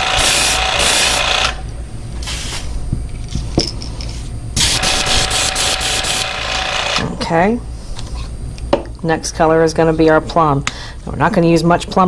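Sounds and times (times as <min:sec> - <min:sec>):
airbrush spraying hissing air: 0:00.0 - 0:01.3, 0:02.2 - 0:02.8, 0:04.6 - 0:06.4.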